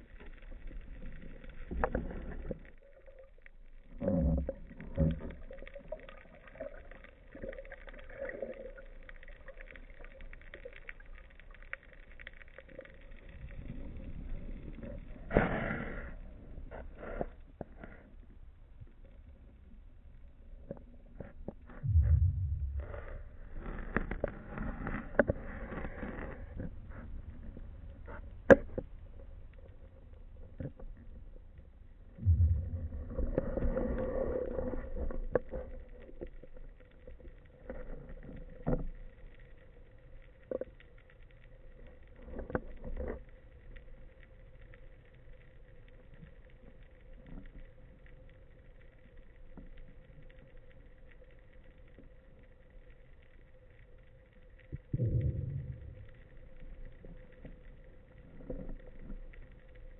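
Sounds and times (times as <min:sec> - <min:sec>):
water rushing underwater: 0:00.0 - 0:11.2, 0:21.7 - 0:26.3, 0:32.2 - 0:36.5, 0:54.9 - 0:59.2
faint steady hum: 0:00.0 - 0:59.9
low thumps: 0:21.8 - 0:23.6, 0:32.2 - 0:33.2.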